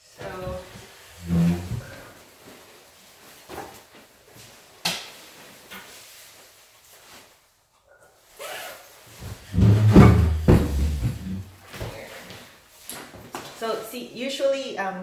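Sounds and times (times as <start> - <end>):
backpack straps rustling and rubbing: 8.3 - 9.6
low bumps against microphone: 9.5 - 11.5.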